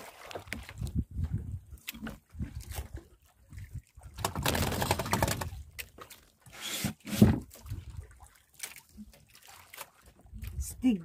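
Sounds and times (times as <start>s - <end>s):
rustling and scraping on boat: 4.4s - 8.0s.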